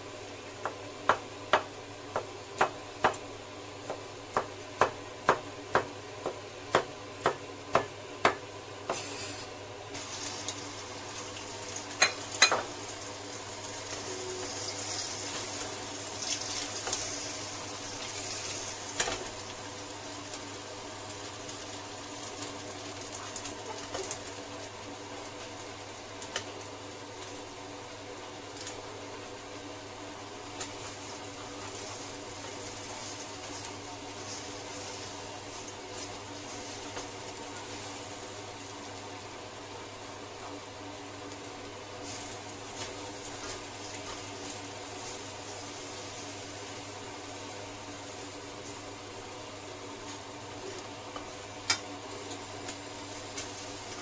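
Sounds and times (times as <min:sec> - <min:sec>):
egg sizzling in wok: 0:08.9 - 0:40.0, 0:41.3 - 0:50.3.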